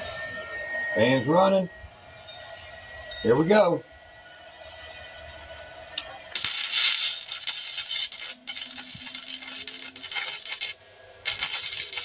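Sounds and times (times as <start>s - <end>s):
welding arc crackling: 6.0s - 12.0s.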